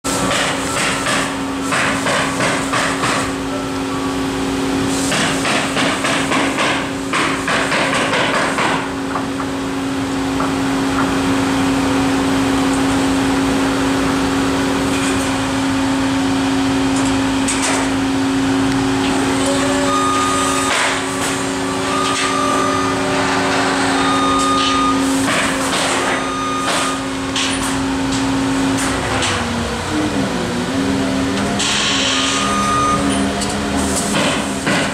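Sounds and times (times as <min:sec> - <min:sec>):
crane engine running: 0:00.1 - 0:34.9
hammering on timber: 0:00.3 - 0:03.3, 0:05.1 - 0:09.3.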